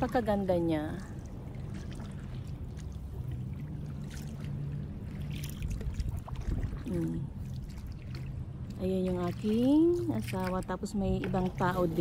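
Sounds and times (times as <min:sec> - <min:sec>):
low steady rumble: 0:00.0 - 0:12.0
water drips and splashes: 0:00.0 - 0:12.0
water lapping around a kayak: 0:00.0 - 0:12.0.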